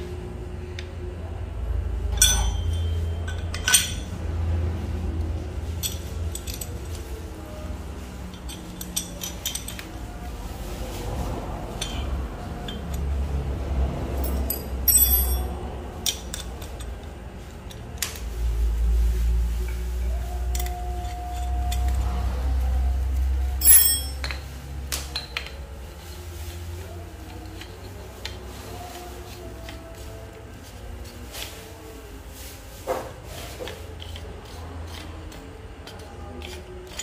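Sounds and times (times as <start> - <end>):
metal parts clicking and clinking: 2.1 - 4.2, 5.7 - 7.1, 8.3 - 10.0, 11.8 - 12.0, 12.6 - 13.1, 14.2 - 17.0, 20.4 - 22.0, 23.6 - 24.4
brief metallic rings: 23.6 - 24.2.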